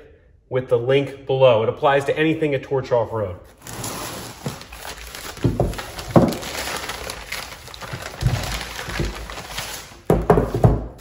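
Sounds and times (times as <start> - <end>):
paper crumpling and rustling: 3.5 - 10.2.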